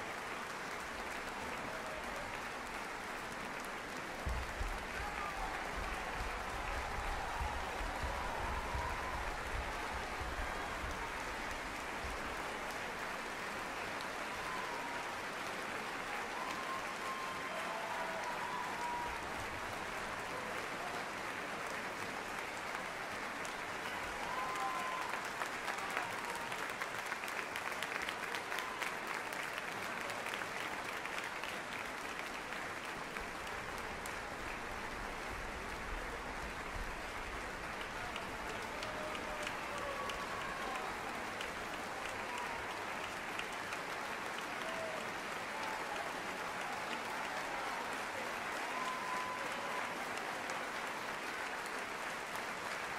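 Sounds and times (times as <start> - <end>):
audience applauding: 0.0 - 52.9.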